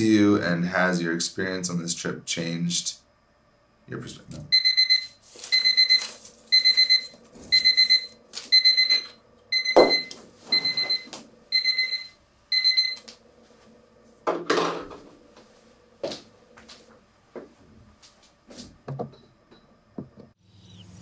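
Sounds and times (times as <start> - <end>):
electronic alarm beeping: 4.5 - 13.1.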